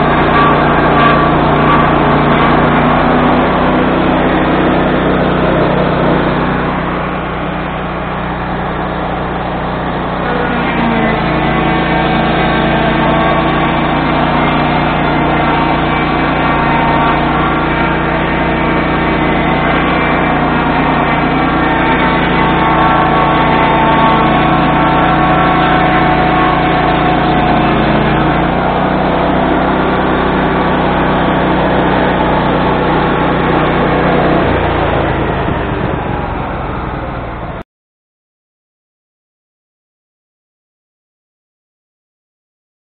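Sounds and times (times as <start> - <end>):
sawmill engine and blade cutting log: 0.0 - 37.6.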